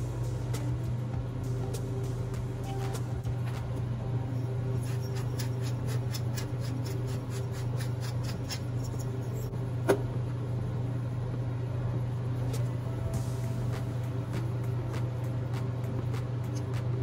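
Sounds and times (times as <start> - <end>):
steady low hum: 0.0 - 17.0
pepper mill grinding: 4.7 - 9.2.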